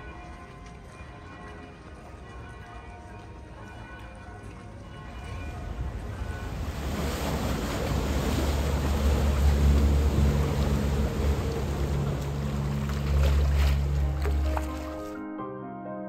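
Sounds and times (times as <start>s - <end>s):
water rushing wash: 3.2s - 15.2s
outboard motor humming: 6.5s - 15.2s.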